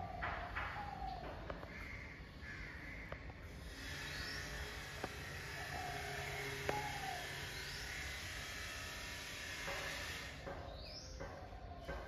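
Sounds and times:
faint bird calls: 0.0 - 8.5.

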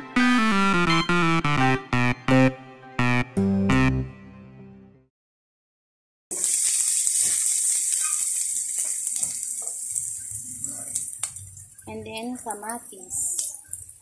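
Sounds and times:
onion sizzling in oil: 6.3 - 14.0.

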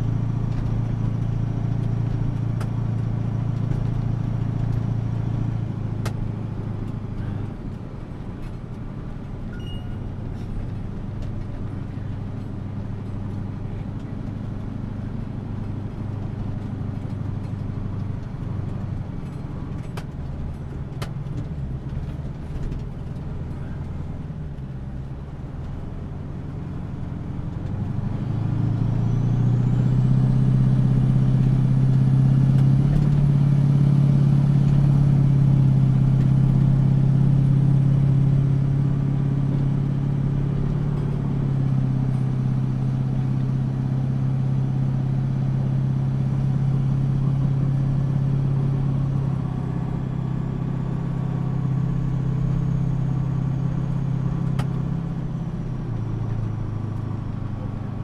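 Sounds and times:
truck engine running under load: 0.0 - 58.0
faint high whine: 9.5 - 10.1.

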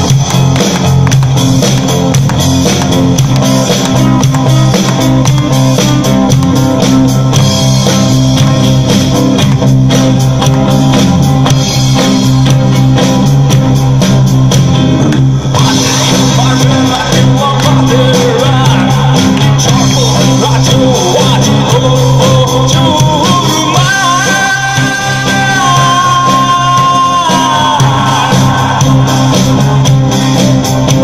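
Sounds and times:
drum kit beat: 0.0 - 31.0
person singing: 15.5 - 30.4.

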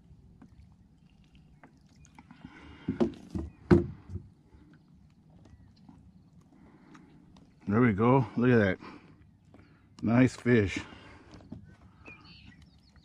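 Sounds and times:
fish splashing: 0.0 - 3.6
knocks on plastic kayak: 2.9 - 4.2.

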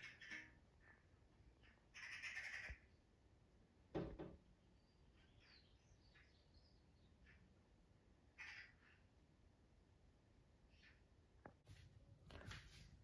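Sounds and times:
faint magpie chattering: 0.0 - 3.0, 8.3 - 9.1
knocks: 3.9 - 4.4
faint small bird chirps: 4.6 - 7.6.

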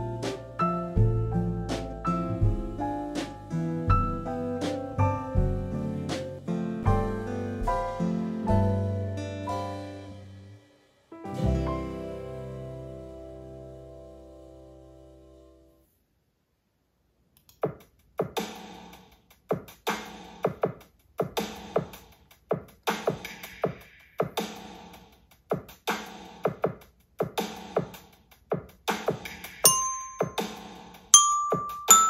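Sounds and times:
glockenspiel notes: 29.7 - 32.0.

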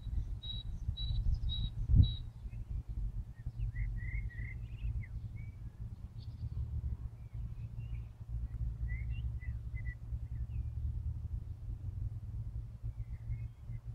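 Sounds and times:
high bird chirps: 0.0 - 10.8
lower bird twittering: 0.0 - 13.9
steady low rumble: 0.0 - 13.9.

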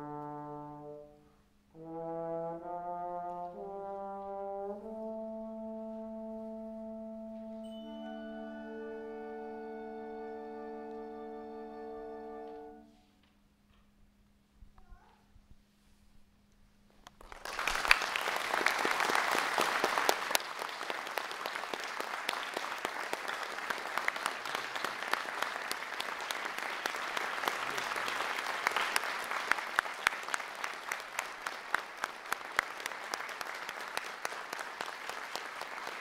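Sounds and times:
audience applauding: 17.2 - 36.0.

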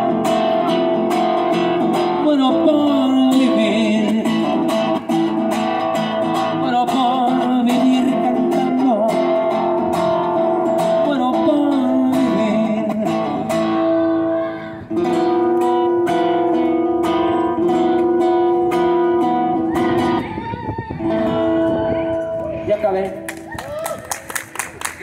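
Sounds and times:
man singing with vibrato: 0.0 - 15.9
strummed acoustic guitar: 0.0 - 22.7.

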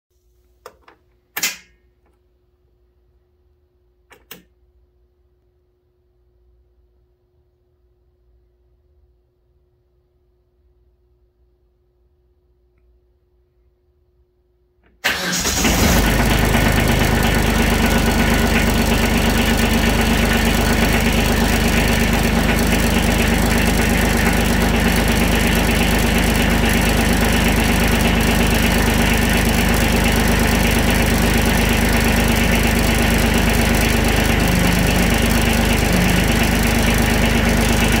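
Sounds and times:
diesel tractor engine starting: 15.0 - 38.0
diesel engine idling: 15.1 - 38.0.

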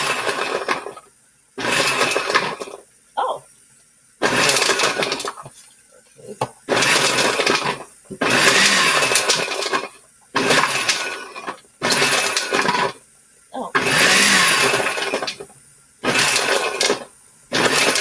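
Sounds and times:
blender grinding frozen berries: 0.0 - 2.9, 4.2 - 5.6, 6.2 - 13.0, 13.6 - 18.0.

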